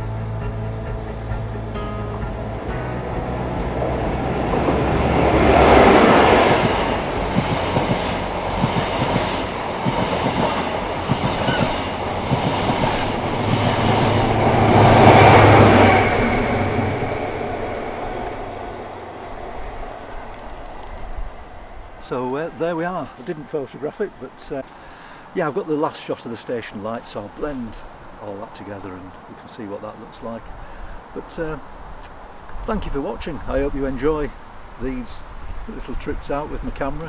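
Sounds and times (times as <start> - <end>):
diesel train engines passing: 0.0 - 32.2
train wheels clattering over rail joints: 4.4 - 16.0.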